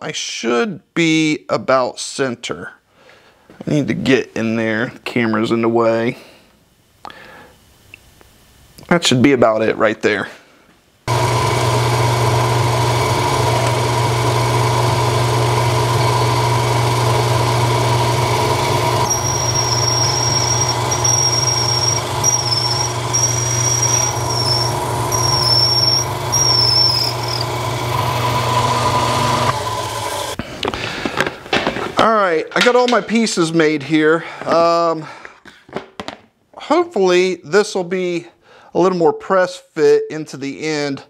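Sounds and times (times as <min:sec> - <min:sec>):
drill bit squealing: 0:11.1 - 0:30.4
milling machine spindle running: 0:11.1 - 0:30.4.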